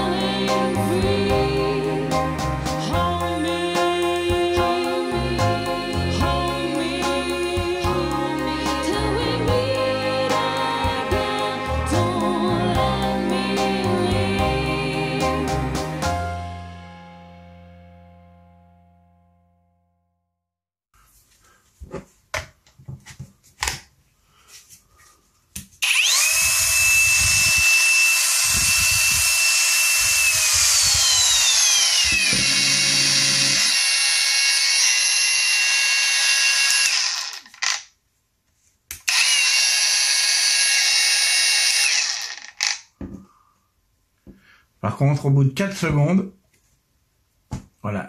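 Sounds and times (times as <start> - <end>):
angle grinder whining: 25.8 - 37.9, 38.9 - 42.9.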